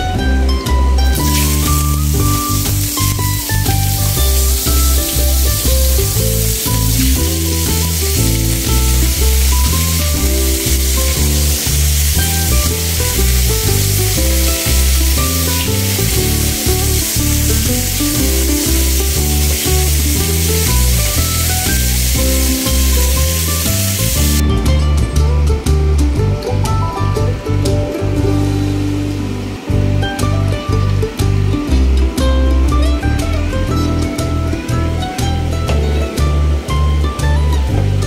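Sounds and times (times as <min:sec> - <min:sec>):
background music with bass line: 0:00.0 - 0:38.0
fish sizzling in hot oil: 0:01.0 - 0:24.4.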